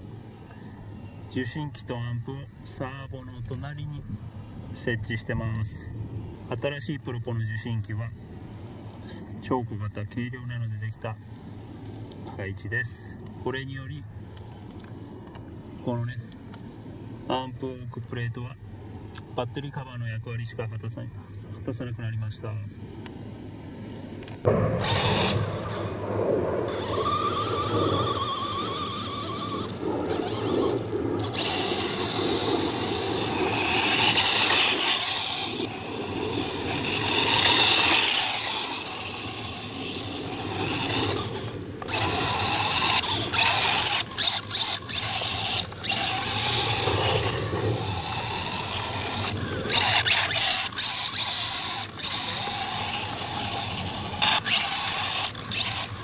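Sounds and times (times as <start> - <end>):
electric motor whine with gears: 24.4 - 26.0, 26.7 - 56.0.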